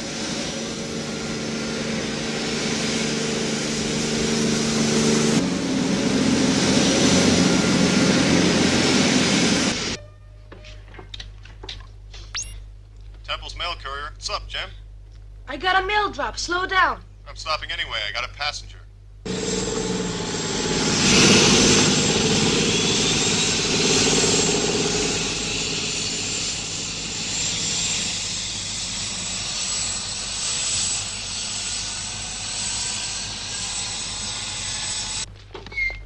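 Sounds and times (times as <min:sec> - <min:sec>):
hovercraft engine droning: 0:00.0 - 0:10.2, 0:19.2 - 0:35.3.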